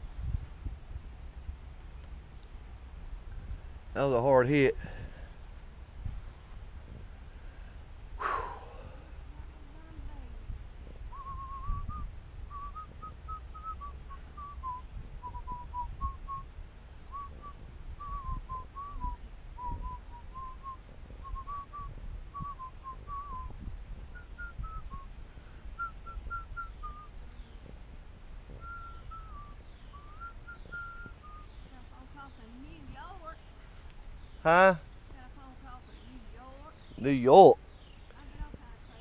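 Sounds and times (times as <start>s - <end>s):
steady low rumble: 0.0s - 37.0s
man whistling a tune: 11.1s - 16.4s, 17.1s - 23.5s, 24.1s - 25.1s, 25.8s - 27.1s, 28.6s - 31.6s.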